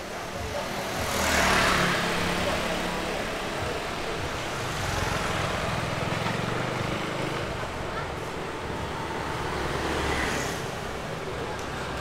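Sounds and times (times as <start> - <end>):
motor scooter engines running: 0.0 - 12.0.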